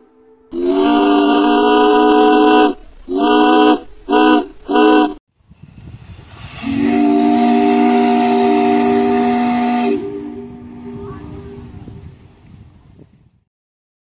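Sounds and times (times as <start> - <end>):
ship's whistle blasts: 0.0 - 5.1, 6.3 - 12.2
steam hissing: 5.4 - 13.1
chime steam whistle chord: 6.0 - 11.8.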